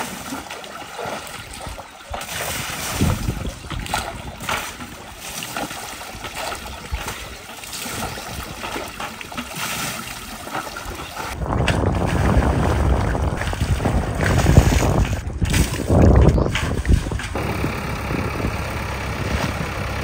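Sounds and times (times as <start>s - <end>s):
river water splashing: 0.0s - 20.0s
loud low rumble: 17.3s - 20.0s.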